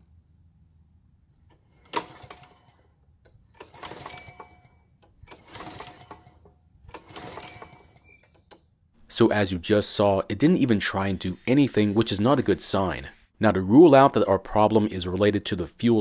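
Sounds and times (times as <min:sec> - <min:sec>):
recoil starter rope pulls: 0:01.8 - 0:02.9, 0:03.5 - 0:08.6
engine turning over: 0:03.6 - 0:04.5, 0:05.3 - 0:08.0.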